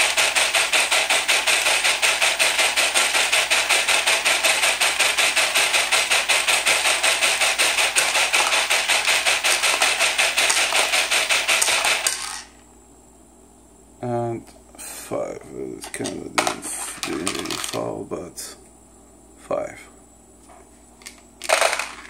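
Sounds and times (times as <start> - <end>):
screws rattling on spinning disc: 0.0 - 12.6, 17.0 - 17.8, 21.4 - 22.0.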